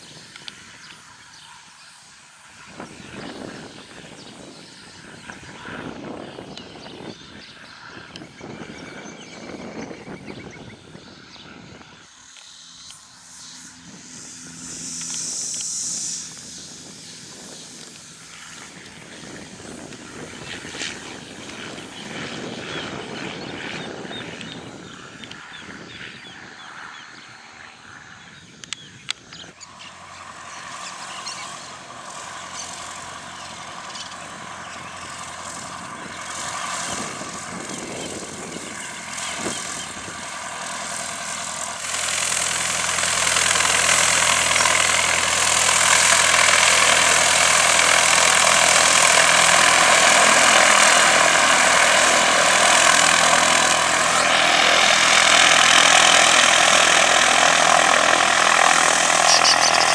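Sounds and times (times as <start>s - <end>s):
small plane engine and propeller: 0.0s - 59.9s
sharp clicks: 59.2s - 59.9s.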